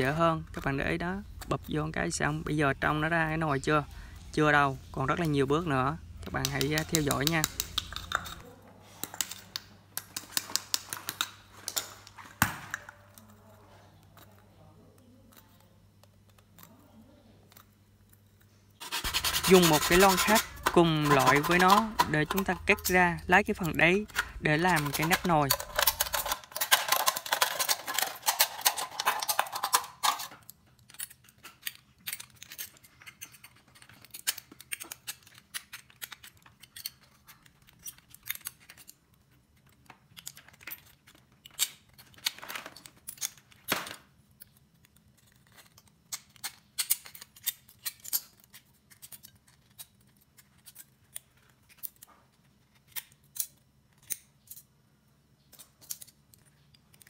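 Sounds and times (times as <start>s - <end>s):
scissors cutting aluminium can: 18.8s - 30.3s.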